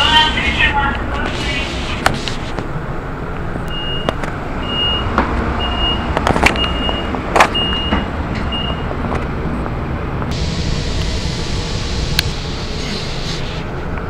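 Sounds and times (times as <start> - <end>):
low rumble: 0.0 - 14.0
short high door warning beeps: 3.7 - 8.9.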